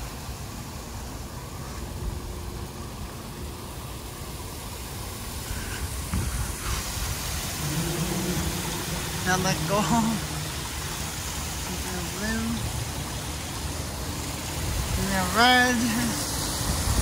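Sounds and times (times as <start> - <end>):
water splashing down fountain wall: 0.0 - 17.0.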